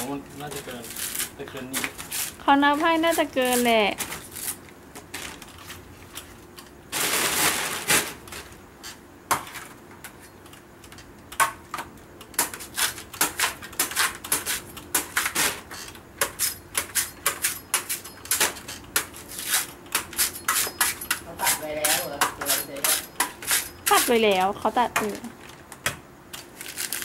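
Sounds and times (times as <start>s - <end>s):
knife cutting coconut husk: 19.2s - 24.3s.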